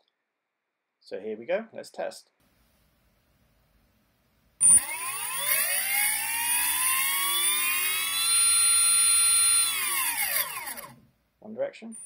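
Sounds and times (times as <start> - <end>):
electric motor whine: 4.6 - 11.0.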